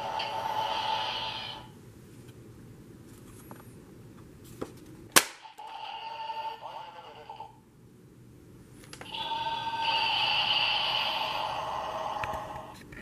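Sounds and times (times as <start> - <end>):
electronic toy sound effect: 9.1 - 12.5.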